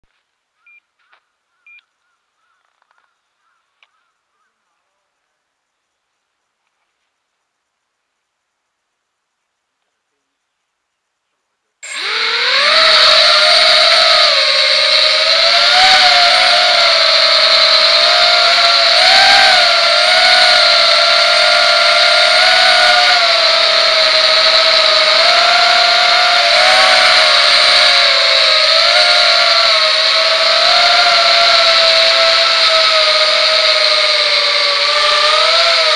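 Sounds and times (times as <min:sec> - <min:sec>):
quadcopter motors whining: 0:11.8 - 0:35.9.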